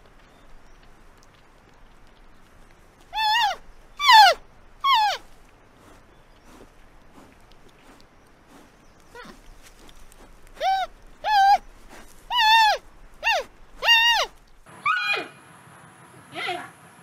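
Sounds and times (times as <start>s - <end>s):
panda high-pitched calls: 3.1s - 5.2s, 10.6s - 11.6s, 12.3s - 15.4s.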